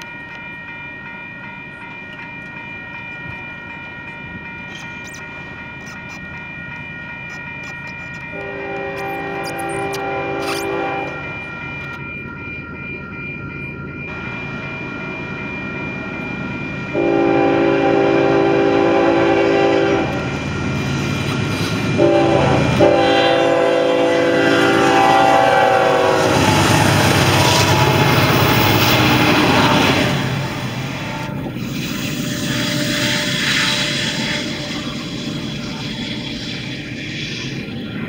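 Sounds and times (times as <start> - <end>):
crossing bell ringing: 0.0 - 38.0
train engine and wheel noise: 0.0 - 38.0
locomotive horn blasts: 8.3 - 11.2, 16.9 - 20.3, 21.9 - 28.3, 29.0 - 35.0.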